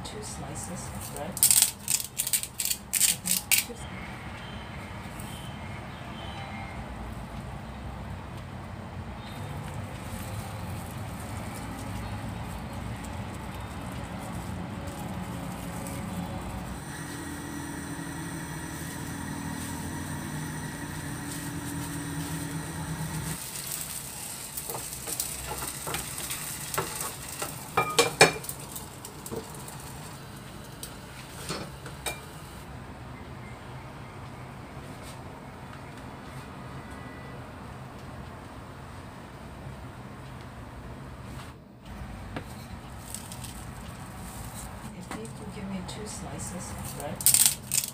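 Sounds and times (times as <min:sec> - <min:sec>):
wrap sizzling in pan: 0:09.6 - 0:32.6
cookware clinking against pan: 0:26.8 - 0:28.5.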